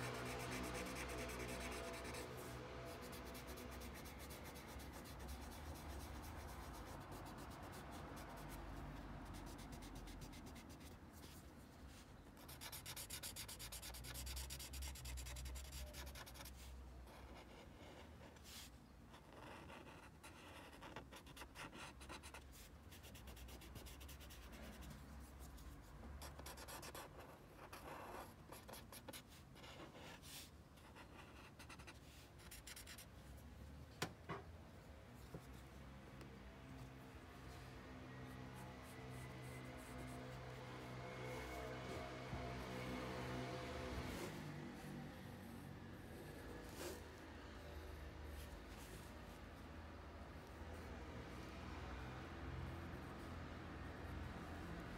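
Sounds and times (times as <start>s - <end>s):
paper stump rubbing graphite: 0.0s - 11.4s, 12.4s - 16.7s.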